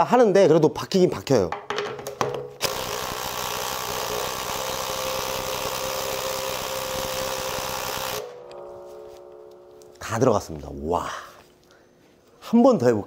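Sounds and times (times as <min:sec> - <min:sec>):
cordless drill driving screw: 0:02.6 - 0:08.2.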